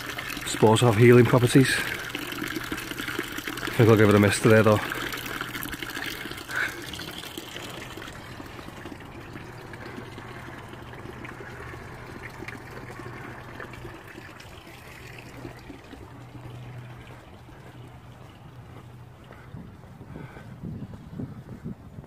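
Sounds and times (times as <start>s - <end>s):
water trickling into stone basin: 0.0s - 19.9s.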